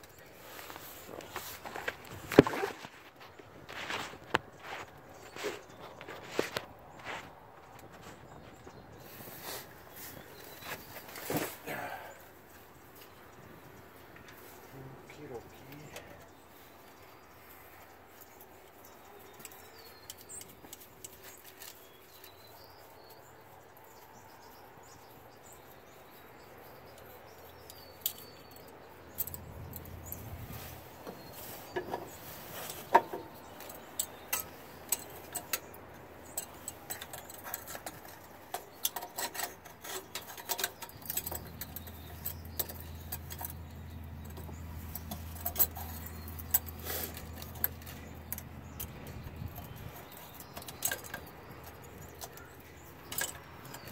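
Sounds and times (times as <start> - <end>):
metallic clicks and clinks: 33.4 - 53.9.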